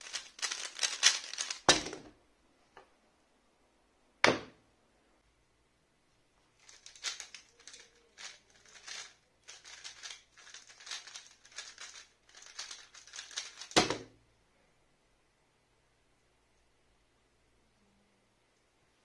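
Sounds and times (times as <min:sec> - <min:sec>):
puzzle cube clicking and rattling: 0:00.0 - 0:01.9, 0:06.6 - 0:14.0.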